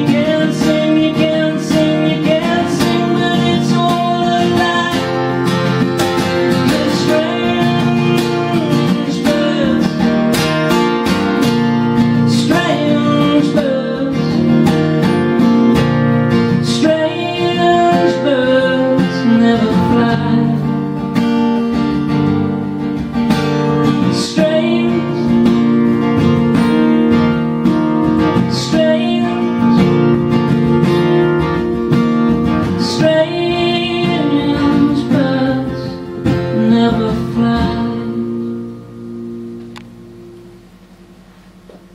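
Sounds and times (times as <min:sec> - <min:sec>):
man singing: 0:00.0 - 0:05.7, 0:06.4 - 0:10.3, 0:12.2 - 0:15.4, 0:16.5 - 0:20.8, 0:23.9 - 0:25.7, 0:28.4 - 0:30.1, 0:32.7 - 0:38.3
acoustic guitar strumming: 0:00.0 - 0:41.9.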